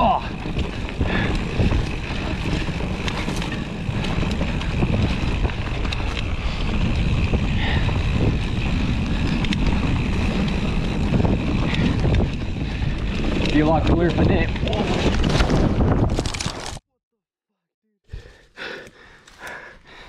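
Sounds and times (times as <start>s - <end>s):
wind rushing over microphone: 0.0s - 16.7s
bike rattling over ground: 0.0s - 16.8s.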